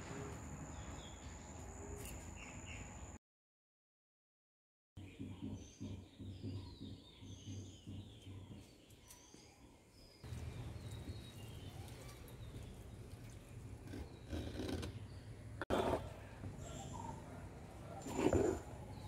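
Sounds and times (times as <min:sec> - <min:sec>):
small birds chirping: 0:05.0 - 0:19.0.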